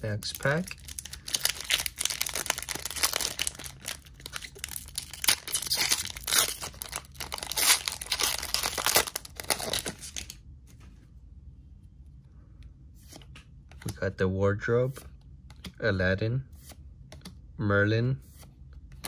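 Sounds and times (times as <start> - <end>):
wrapper torn and crinkled: 0.3 - 10.4.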